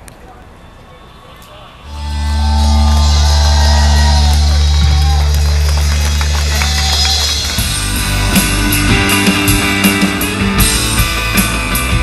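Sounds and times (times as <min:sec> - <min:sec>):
bass guitar: 0:01.9 - 0:12.0
electric guitars: 0:01.9 - 0:12.0
drums with cymbal hits: 0:03.0 - 0:12.0.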